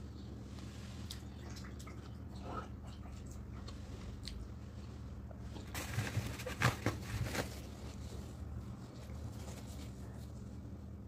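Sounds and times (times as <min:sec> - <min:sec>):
low steady hum: 0:00.0 - 0:11.0
paper tissue rustling: 0:05.0 - 0:11.0.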